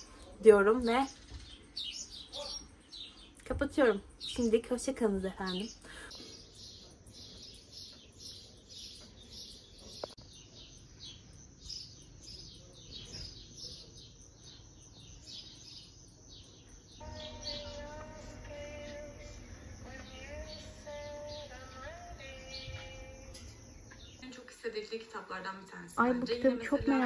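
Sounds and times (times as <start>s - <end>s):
small birds chirping: 0.0s - 27.0s
music with singing: 17.0s - 23.6s.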